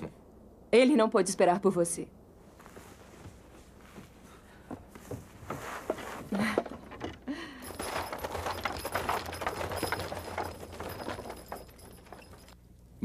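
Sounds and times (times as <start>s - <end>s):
hooves clopping: 3.9s - 12.6s
harness and wheels rattling: 5.0s - 12.6s.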